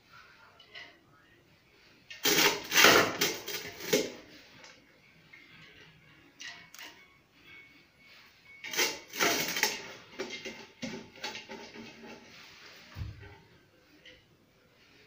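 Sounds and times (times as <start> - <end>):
steel bowls and pot clattering: 2.2 - 4.2, 8.6 - 12.5.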